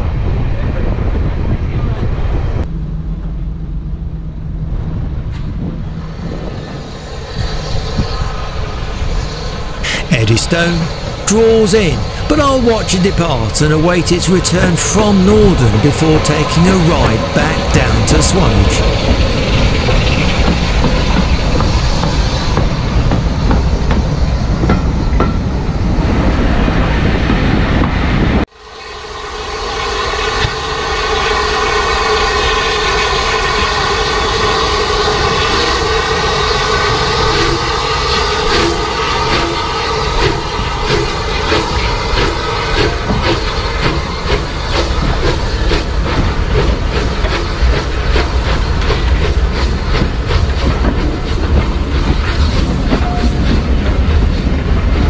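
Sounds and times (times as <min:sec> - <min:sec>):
steam locomotive pulling out: 0:05.0 - 0:28.0, 0:28.6 - 0:55.0
train wheels clickety-clack: 0:14.0 - 0:25.5, 0:34.4 - 0:55.0.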